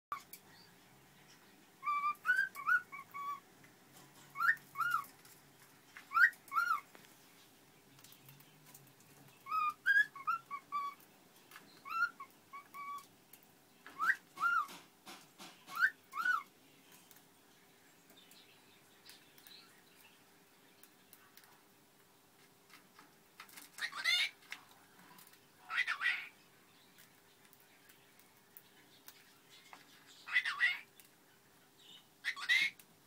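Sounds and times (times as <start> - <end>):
cockatiel whistling a tune: 1.8 - 3.4, 4.4 - 5.0, 9.4 - 11.0, 14.0 - 14.7.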